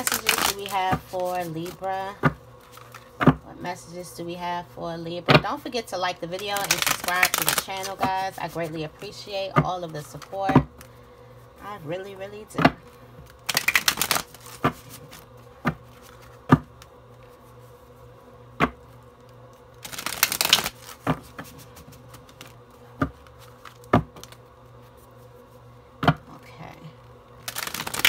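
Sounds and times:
tarot cards shuffled by hand: 0:00.0 - 0:03.4, 0:06.1 - 0:11.0, 0:12.8 - 0:18.1, 0:18.8 - 0:25.6, 0:27.4 - 0:28.0.

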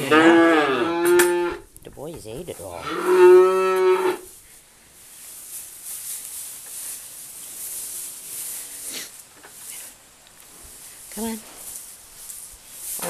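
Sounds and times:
faint hiss: 0:04.2 - 0:13.0.

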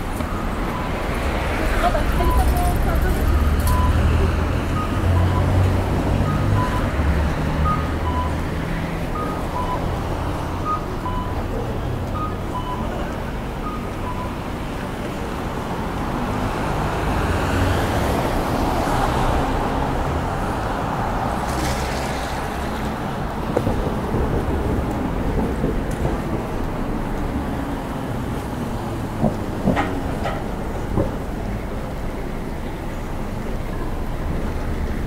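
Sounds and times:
street traffic: 0:00.0 - 0:35.0
vehicle passing: 0:16.1 - 0:31.4.

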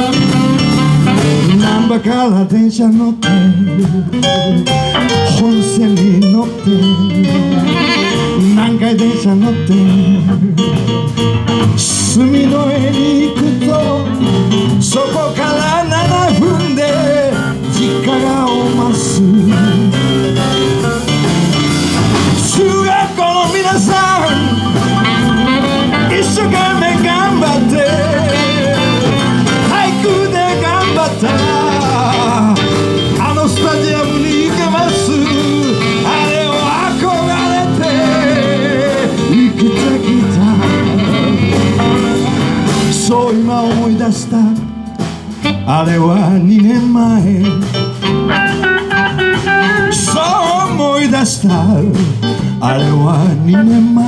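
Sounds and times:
electric guitar: 0:00.0 - 0:02.5, 0:03.2 - 0:54.0
drum kit: 0:00.0 - 0:54.0
electric bass: 0:00.0 - 0:54.0
melody line: 0:15.6 - 0:43.2.

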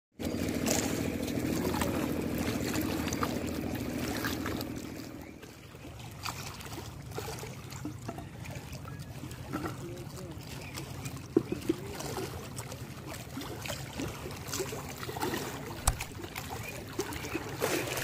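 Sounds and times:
small engine humming: 0:00.2 - 0:05.6
water lapping at river edge: 0:00.2 - 0:18.0.

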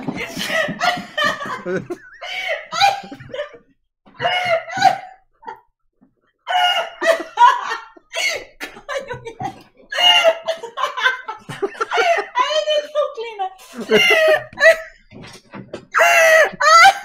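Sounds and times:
people laughing: 0:00.0 - 0:03.7, 0:06.6 - 0:15.1.

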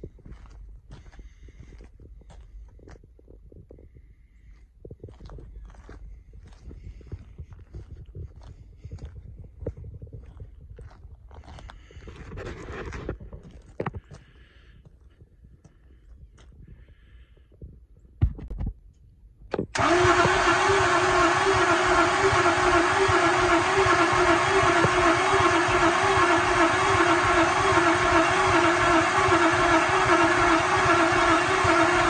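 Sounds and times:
diesel engine cranking and running: 0:19.6 - 0:32.0.

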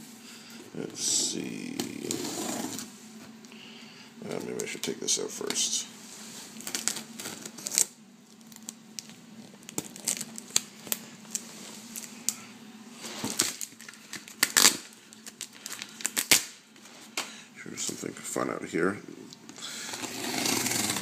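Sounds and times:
cardboard box tape tearing: 0:20.0 - 0:21.0.

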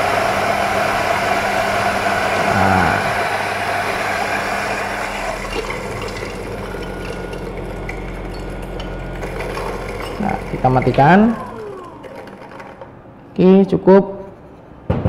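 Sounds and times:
coffee grinder grinding beans: 0:00.0 - 0:13.0
motor hum: 0:00.0 - 0:13.4.

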